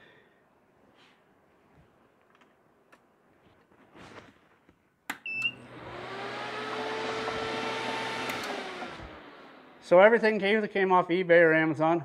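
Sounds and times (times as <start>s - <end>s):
pump and fans humming: 5.4s - 9.4s
switch click: 8.2s - 8.6s.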